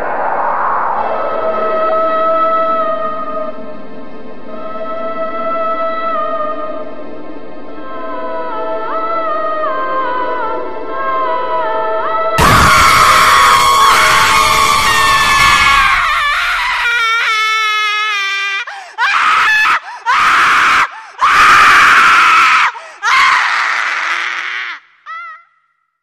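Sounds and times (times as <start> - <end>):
high-pitched screams: 12.4 - 25.6.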